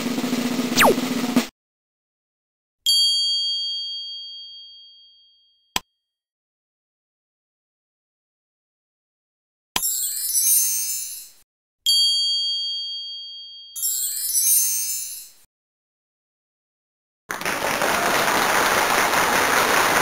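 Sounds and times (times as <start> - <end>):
bell ding: 2.9 - 5.7, 11.9 - 14.9.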